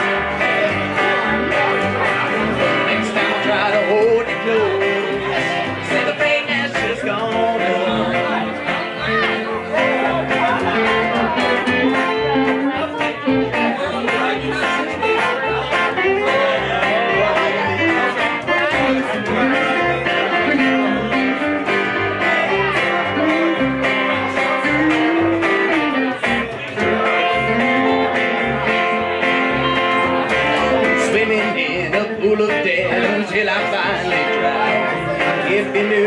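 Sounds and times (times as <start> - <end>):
guitars playing: 0.0 - 36.0
plucked upright bass: 0.0 - 36.0.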